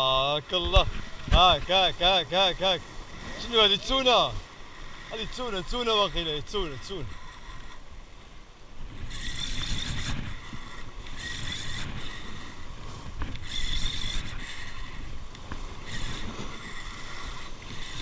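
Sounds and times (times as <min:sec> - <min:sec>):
fishing reel buzzing: 0:00.0 - 0:18.0.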